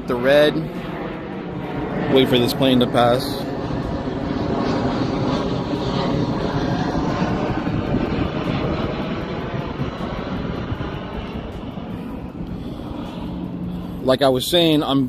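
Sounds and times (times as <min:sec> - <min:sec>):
airplane engine rumble: 0:00.0 - 0:15.0.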